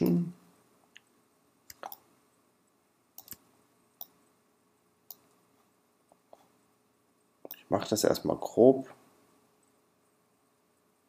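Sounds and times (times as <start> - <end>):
faint computer mouse clicks: 3.2 - 3.4, 5.1 - 5.4.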